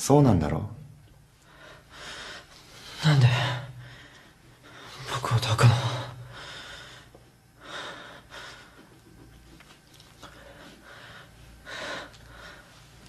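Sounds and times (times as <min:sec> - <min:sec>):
man breathing heavily: 0:01.4 - 0:05.0, 0:06.2 - 0:09.4, 0:10.2 - 0:13.0.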